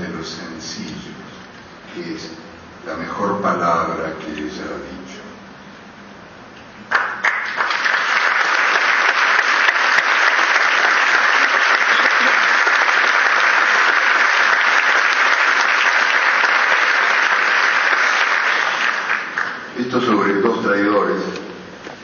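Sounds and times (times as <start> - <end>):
audience applauding: 6.9 - 19.9.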